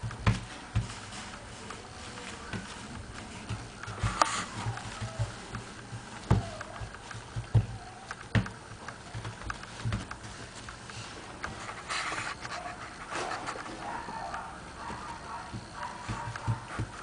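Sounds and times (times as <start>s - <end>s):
puppy scrambling on turf: 0.0s - 17.0s
dull thumps: 2.4s - 10.6s, 14.8s - 17.0s.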